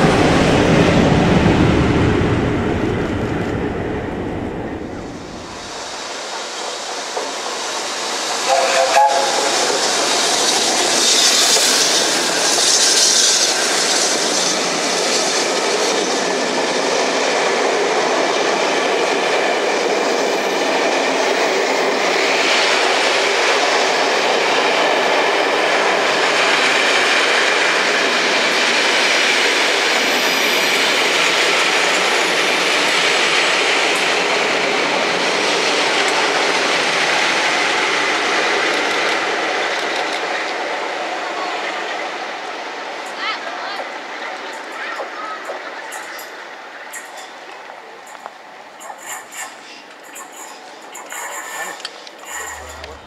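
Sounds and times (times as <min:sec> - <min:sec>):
train wheels rolling over track: 0:00.0 - 0:41.3, 0:43.8 - 0:53.0
steam hissing: 0:05.1 - 0:17.4, 0:48.8 - 0:53.0.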